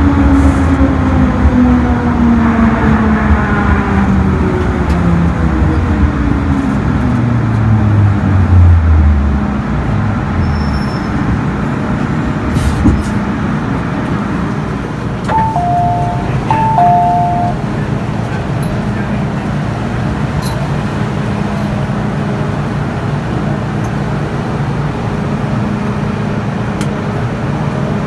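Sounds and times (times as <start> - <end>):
train rumble: 0.0 - 28.0
electronic two-note chime: 15.3 - 17.7.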